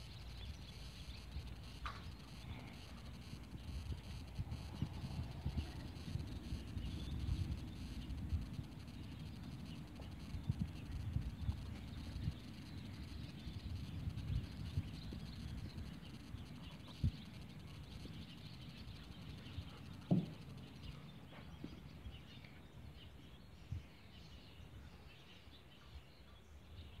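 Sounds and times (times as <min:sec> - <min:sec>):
steady low rumble: 0:00.0 - 0:21.3
faint bird chirps: 0:00.0 - 0:27.0
dull thumps: 0:20.0 - 0:20.6.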